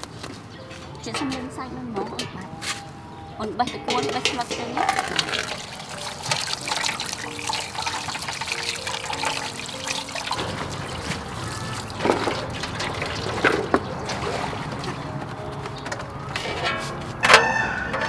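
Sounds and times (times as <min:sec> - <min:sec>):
water splashing in metal bowl: 0:03.9 - 0:15.2.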